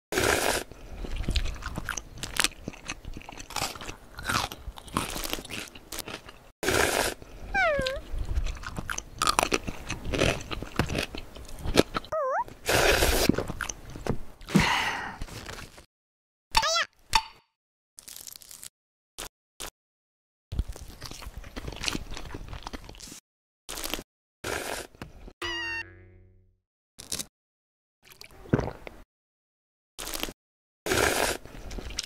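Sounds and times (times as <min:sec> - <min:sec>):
noodle slurping: 0:00.2 - 0:01.8, 0:06.6 - 0:08.0, 0:12.6 - 0:13.4
crisp chewing and crunching: 0:00.2 - 0:14.1, 0:18.0 - 0:19.7, 0:20.6 - 0:24.9, 0:30.0 - 0:32.0
squeaky wavering tones: 0:25.4 - 0:26.3.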